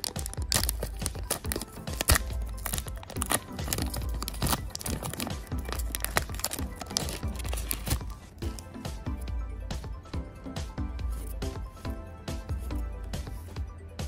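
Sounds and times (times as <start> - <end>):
foil pack crinkling and tearing: 0.0 - 8.6
background music: 0.0 - 14.0.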